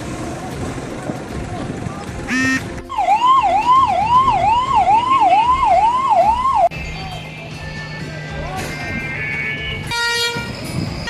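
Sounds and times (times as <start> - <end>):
electronic siren sweeping: 2.9 - 6.7.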